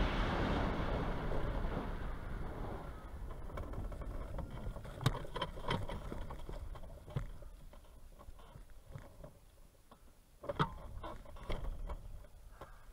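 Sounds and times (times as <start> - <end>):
wind rush: 0.0 - 4.5.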